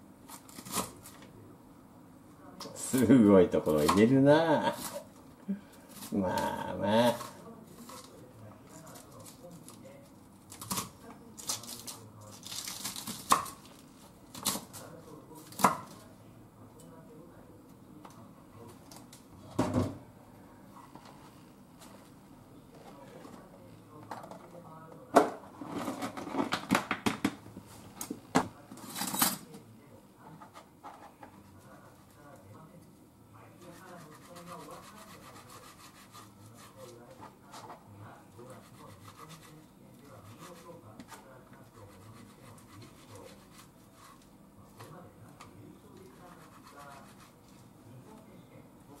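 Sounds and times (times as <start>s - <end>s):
knife sawing on wooden board: 33.7s - 36.8s, 38.6s - 39.6s.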